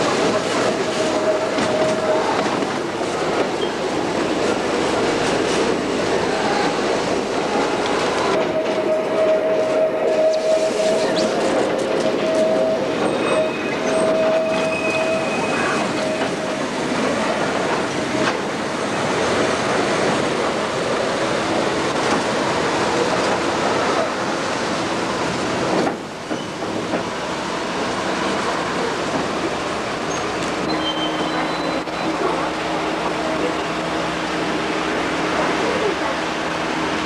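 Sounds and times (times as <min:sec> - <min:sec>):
train wheels rumbling on track: 0:00.0 - 0:37.0
high wheel squeal: 0:08.2 - 0:16.6, 0:30.1 - 0:32.2.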